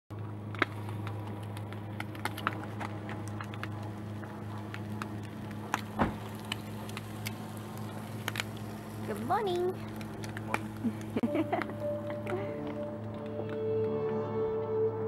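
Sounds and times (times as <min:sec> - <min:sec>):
fat crackling and popping: 0:00.1 - 0:13.7
gas stove hum: 0:00.3 - 0:13.0
meat frying in a pan: 0:00.5 - 0:11.6.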